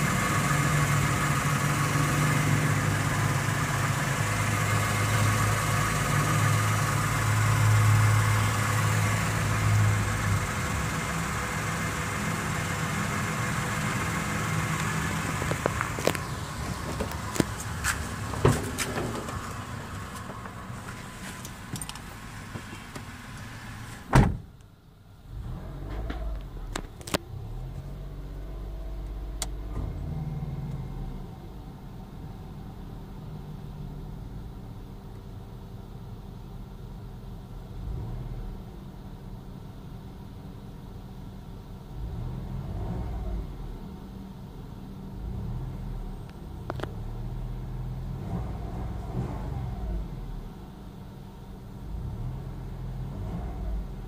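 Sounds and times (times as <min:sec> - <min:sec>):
car engine idling: 0:00.0 - 0:37.8
car door shutting: 0:15.2 - 0:24.6.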